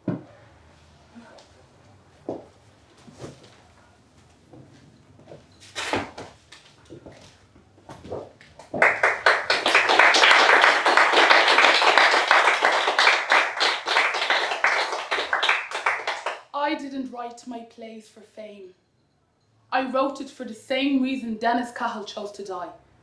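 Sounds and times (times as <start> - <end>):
audience applause: 8.8 - 16.4.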